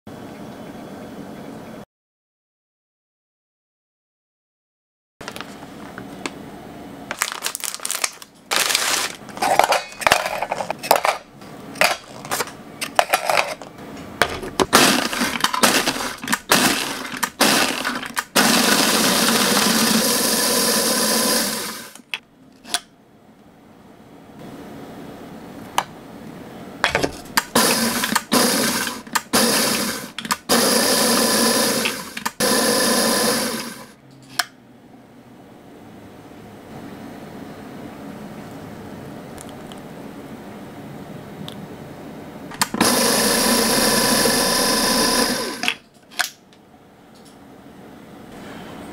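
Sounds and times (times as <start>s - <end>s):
plastic packaging crackling: 5.2s - 5.6s, 7.1s - 10.8s
electric food chopper running: 14.6s - 22.1s, 26.9s - 34.0s, 42.6s - 45.8s.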